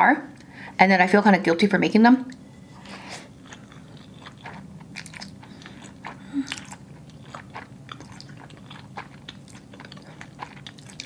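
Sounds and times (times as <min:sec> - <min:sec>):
chewing with wet clicks: 0:03.3 - 0:11.0.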